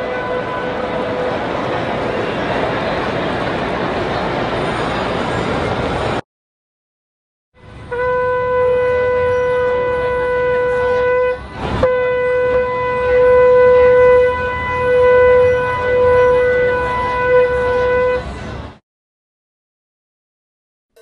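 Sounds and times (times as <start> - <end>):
ram's horn blasts: 0.0 - 2.4, 7.6 - 18.4.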